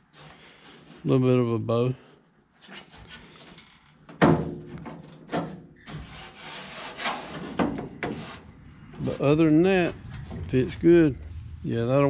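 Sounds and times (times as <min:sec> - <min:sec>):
hand rubbing on sheet metal: 0:05.8 - 0:12.0.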